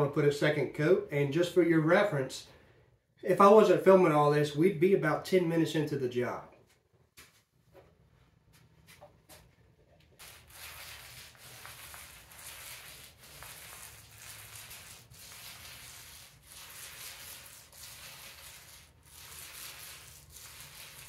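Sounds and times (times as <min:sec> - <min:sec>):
paint roller hissing: 0:10.2 - 0:21.0.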